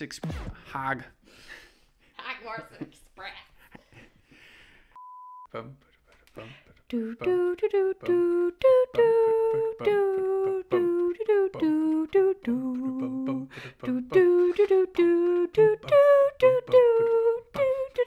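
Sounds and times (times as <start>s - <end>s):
person singing wordless tune: 6.3s - 18.0s.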